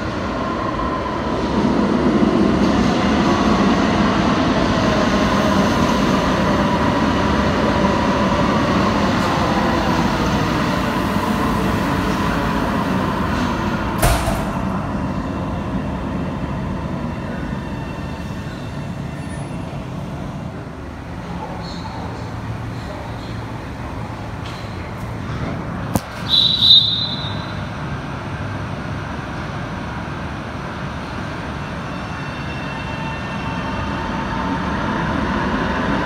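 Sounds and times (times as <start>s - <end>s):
light-rail train rumbling: 0.0s - 36.0s.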